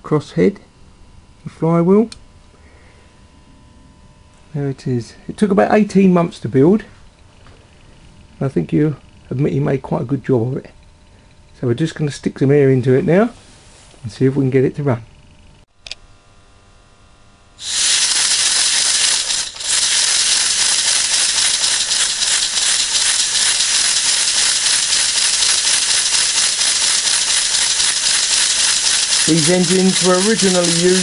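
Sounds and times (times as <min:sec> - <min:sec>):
compressed air hissing: 0:17.6 - 0:31.0
model engine running fast: 0:17.6 - 0:31.0.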